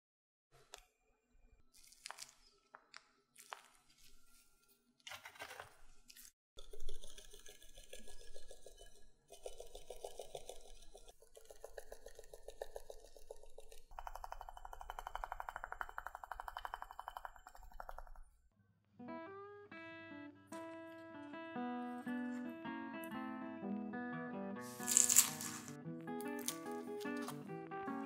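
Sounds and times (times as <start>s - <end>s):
sieve rattling: 24.6s - 25.8s.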